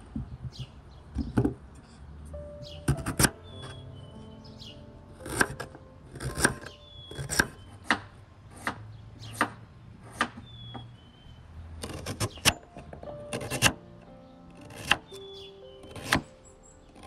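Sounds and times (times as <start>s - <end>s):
cleaver chopping on wooden board: 5.2s - 10.8s, 14.6s - 15.1s, 15.9s - 16.3s.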